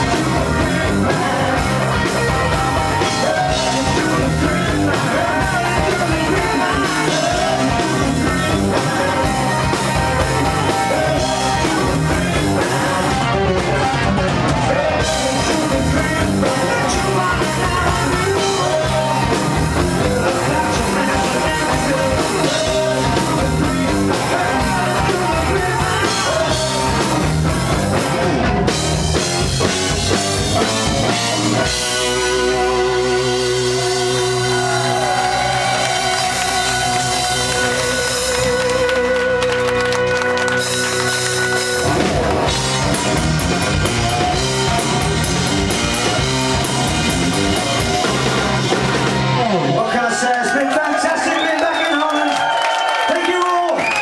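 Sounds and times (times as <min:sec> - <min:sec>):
lead vocals: 0:00.0 - 0:39.9
distorted electric guitar: 0:00.0 - 0:50.1
rock band playing: 0:00.0 - 0:54.0.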